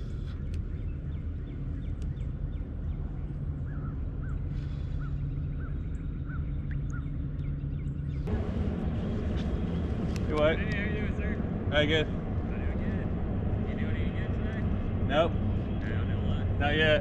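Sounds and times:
steady low hum: 0.0s - 17.0s
loud rushing noise: 8.3s - 17.0s.

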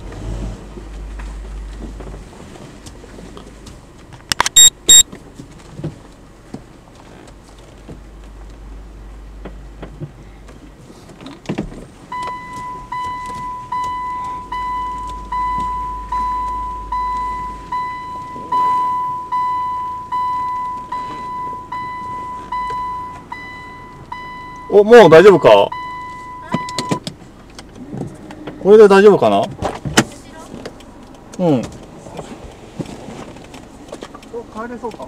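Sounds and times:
car engine humming: 0.0s - 35.0s
reverse warning beeps: 4.4s - 5.0s, 12.1s - 27.0s.

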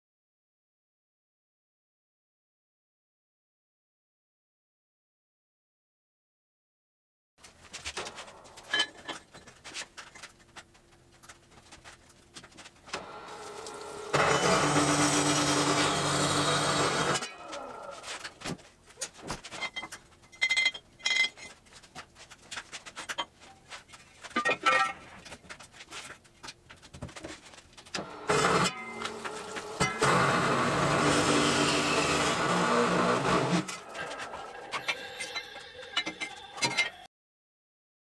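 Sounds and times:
cold saw cutting steel: 12.9s - 18.3s, 28.0s - 37.1s.

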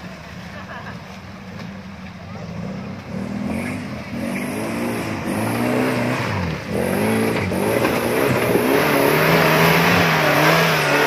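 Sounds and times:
vehicle engine revving: 2.3s - 11.0s.

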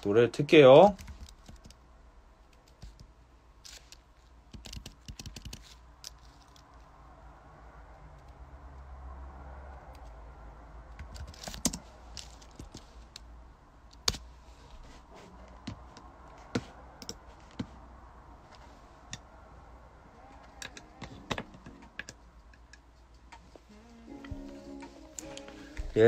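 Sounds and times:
clicks and taps: 20.6s - 23.6s.

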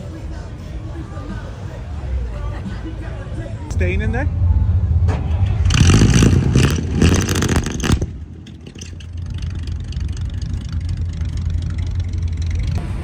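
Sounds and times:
car engine revving and idling: 3.8s - 13.0s.

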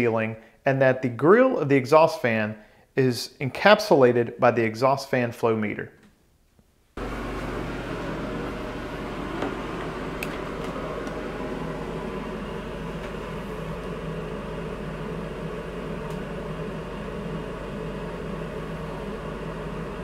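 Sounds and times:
exhaust fan whirring: 7.0s - 20.0s.

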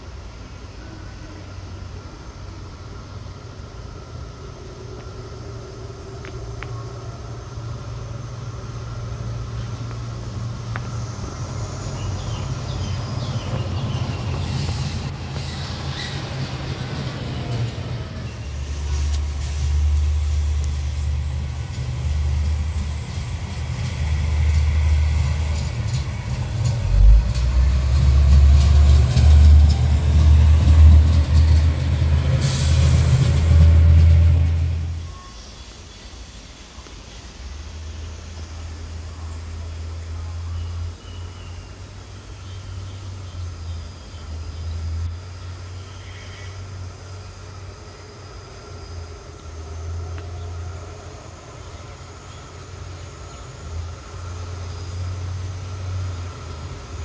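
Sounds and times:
rail vehicle engine rumble: 0.0s - 57.0s.

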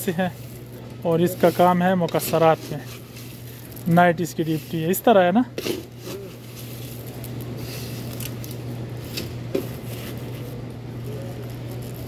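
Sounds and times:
seeds rattling: 0.0s - 5.2s, 5.9s - 8.8s
plastic bag rustling: 0.0s - 12.0s
steady low hum: 0.0s - 12.0s.

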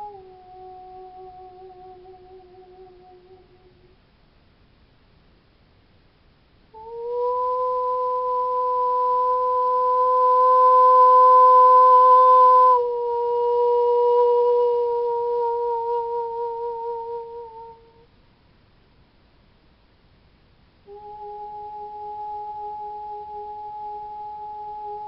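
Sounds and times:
woman singing a long note: 0.0s - 4.0s, 6.7s - 18.1s, 20.9s - 25.0s.

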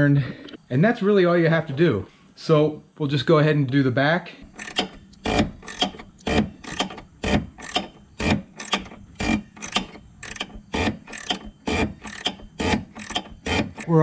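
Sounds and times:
ratchet wrench clicking: 4.5s - 14.0s.

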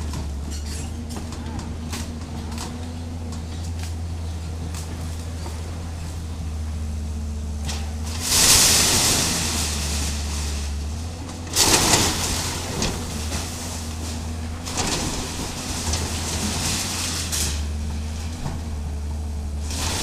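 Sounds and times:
diesel engine running: 0.0s - 20.0s
timber splintering and metal crumpling: 7.5s - 20.0s.

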